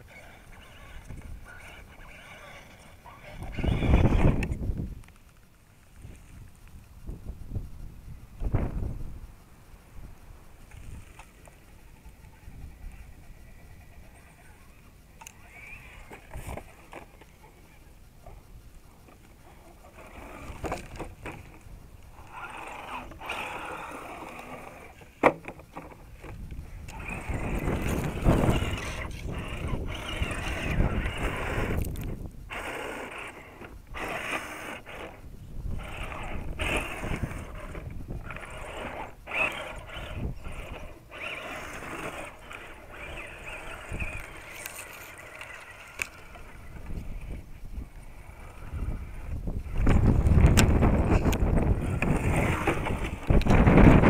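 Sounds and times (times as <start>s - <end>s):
wind on microphone: 0.0s - 5.1s, 6.0s - 17.2s, 25.7s - 54.0s
electric motor and gears whining: 0.0s - 5.2s, 10.5s - 54.0s
tyres scrabbling over dirt: 19.0s - 54.0s.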